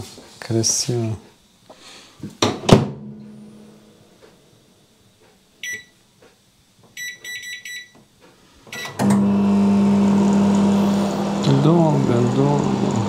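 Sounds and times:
keypad beeps: 5.6s - 6.0s, 7.0s - 8.0s, 8.7s - 9.0s
oven humming: 8.3s - 13.0s.

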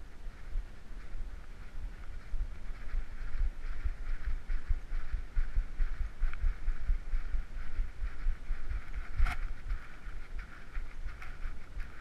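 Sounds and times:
steady hiss: 0.0s - 12.0s
camera thumping on dog harness: 8.7s - 12.0s.

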